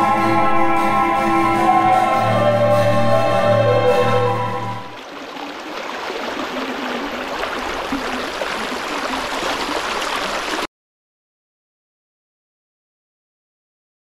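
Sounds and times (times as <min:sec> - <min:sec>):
creek running over stones: 0:04.8 - 0:10.7.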